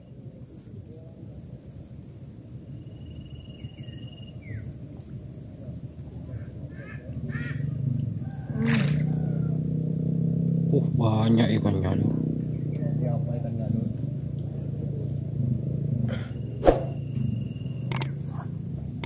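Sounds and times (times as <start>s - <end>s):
wild animal cries: 6.3s - 7.9s
low rumbling hum: 14.8s - 19.0s
fishing rod cast swish: 16.6s - 17.0s.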